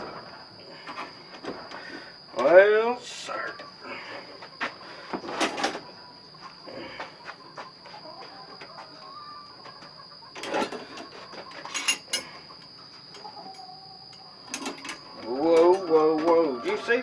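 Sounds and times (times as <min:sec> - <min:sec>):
metal trap clanking and rattling: 0:11.6 - 0:12.3, 0:14.5 - 0:16.0.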